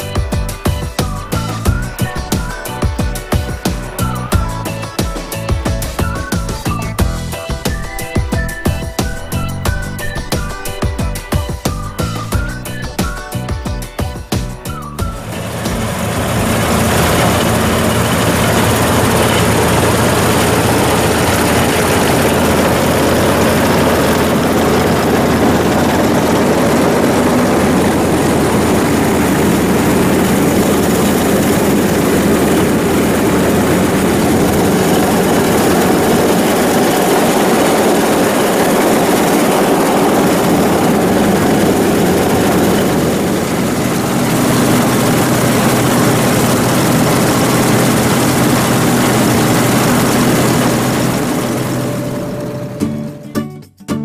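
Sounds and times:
combine harvester engine drone: 0:00.0 - 0:53.2
harvester reel taking in crop: 0:15.2 - 0:52.4.

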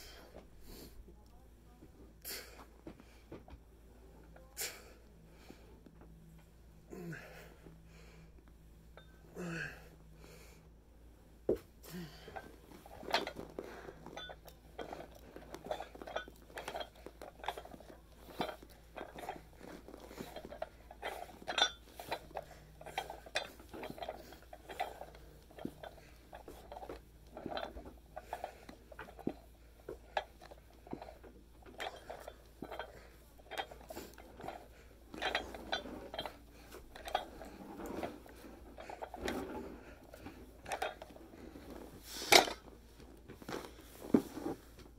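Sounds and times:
weight plates clinking: 0:12.2 - 0:41.6.

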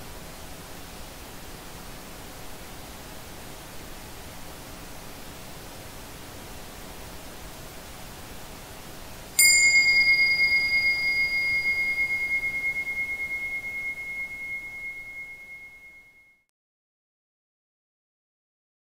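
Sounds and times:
soft hiss: 0:00.0 - 0:16.3
struck bell tone: 0:09.4 - 0:16.4.

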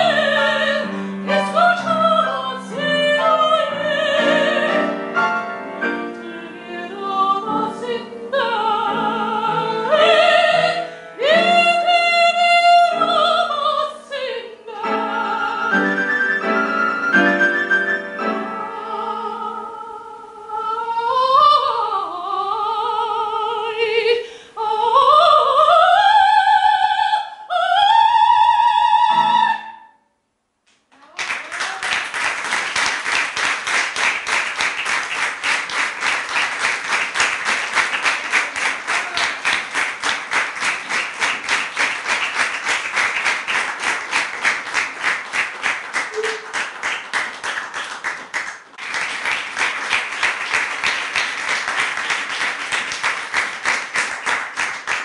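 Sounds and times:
piano accompaniment: 0:00.0 - 0:12.0, 0:14.8 - 0:19.6
soprano singing: 0:00.0 - 0:30.0
audience applauding: 0:31.0 - 0:55.0.

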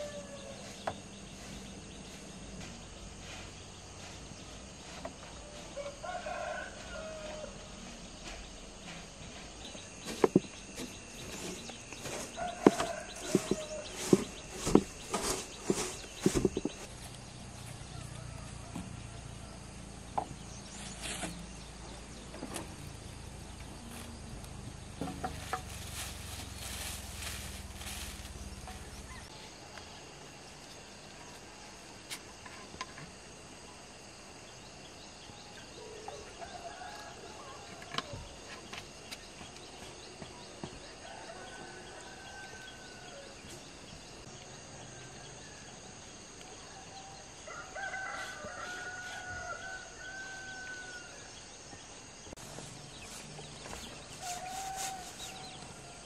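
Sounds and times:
rooster crowing: 0:00.0 - 0:00.7, 0:05.6 - 0:07.7, 0:12.0 - 0:14.3, 0:17.8 - 0:19.6, 0:47.4 - 0:51.3, 0:54.2 - 0:56.0.

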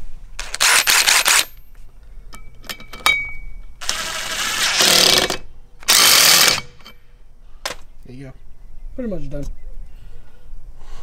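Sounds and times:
impact driver running: 0:00.4 - 0:01.5, 0:03.8 - 0:06.8.

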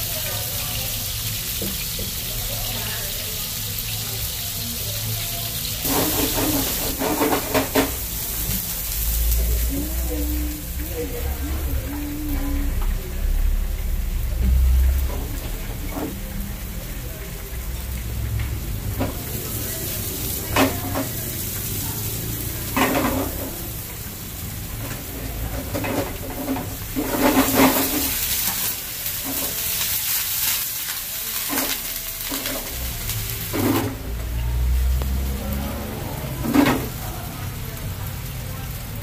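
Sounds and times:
vegetables sizzling in oil: 0:00.0 - 0:39.0
scraping in frying pan: 0:05.8 - 0:09.1, 0:19.0 - 0:23.8, 0:24.8 - 0:34.0.

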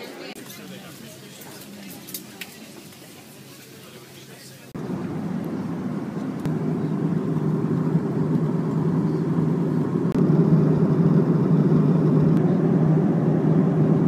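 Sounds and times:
airplane cabin drone: 0:04.7 - 0:14.0.

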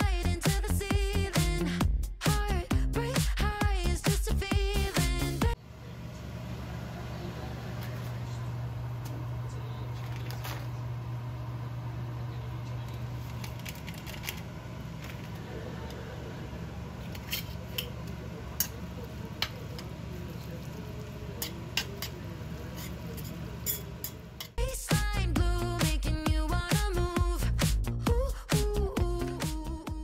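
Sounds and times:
steady low hum: 0:04.5 - 0:29.2
metal utensil scraping a pan: 0:21.4 - 0:24.5.

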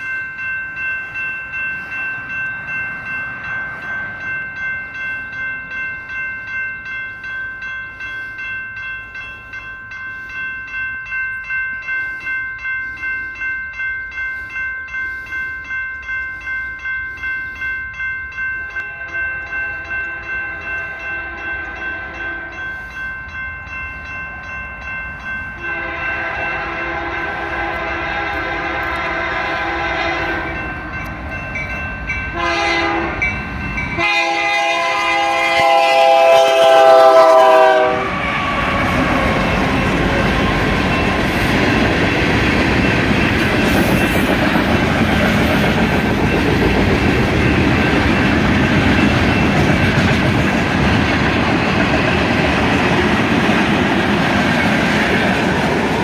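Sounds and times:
crossing bell ringing: 0:00.0 - 0:56.0
train engine and wheel noise: 0:00.0 - 0:56.0
locomotive horn blasts: 0:25.6 - 0:30.6, 0:32.3 - 0:33.3, 0:33.9 - 0:39.4.

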